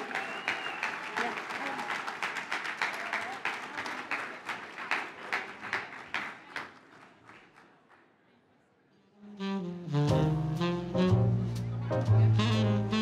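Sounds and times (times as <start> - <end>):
audience applauding: 0.0 - 7.9.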